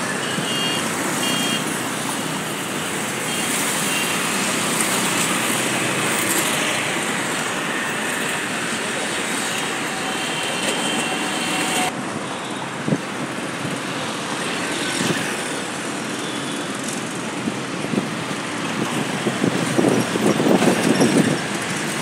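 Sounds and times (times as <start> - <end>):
passenger train rumbling: 0.8 - 12.2, 16.9 - 22.0.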